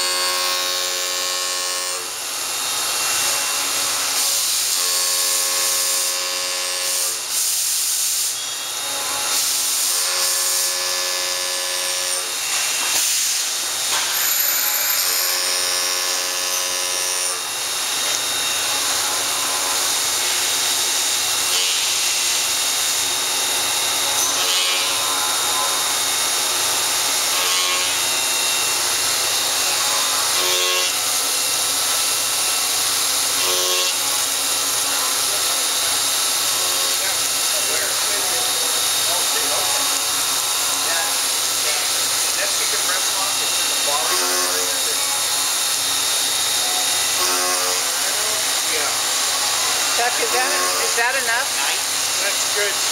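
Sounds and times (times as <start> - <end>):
pitched cutting whine: 8.2 - 52.9
machining center hissing: 12.5 - 15.3, 33.9 - 52.9.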